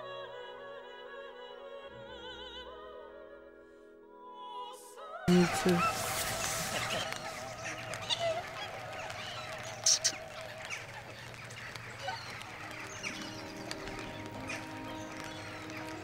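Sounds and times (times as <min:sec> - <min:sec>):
singing with wide vibrato: 0:00.0 - 0:16.0
held music notes: 0:05.3 - 0:16.0
waterfowl flock honking: 0:05.3 - 0:16.0.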